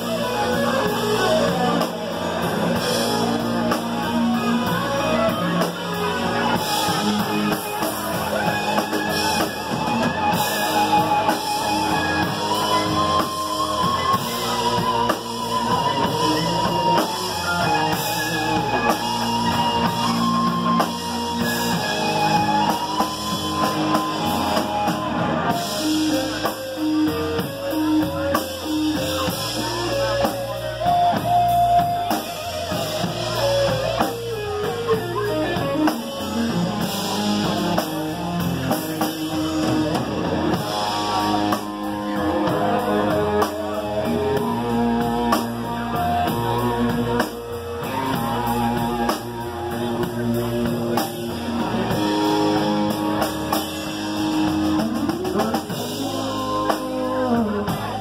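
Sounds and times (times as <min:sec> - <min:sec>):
electric guitar lead lines: 0:00.0 - 0:58.0
rock drums: 0:00.0 - 0:58.0.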